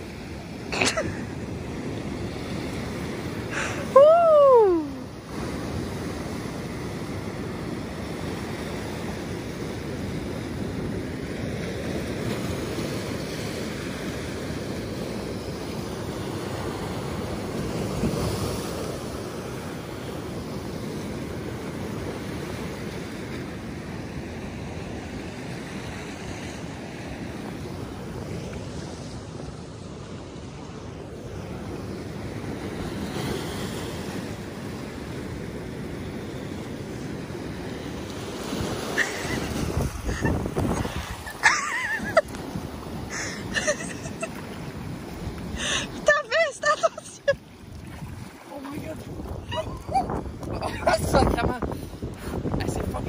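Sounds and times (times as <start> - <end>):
surf breaking over rocks: 0.0 - 53.0
wind buffeting microphone: 36.8 - 43.2, 47.2 - 53.0.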